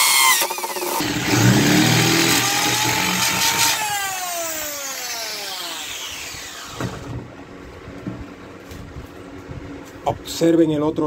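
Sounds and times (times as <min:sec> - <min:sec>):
electric drill whining: 0:00.0 - 0:07.1.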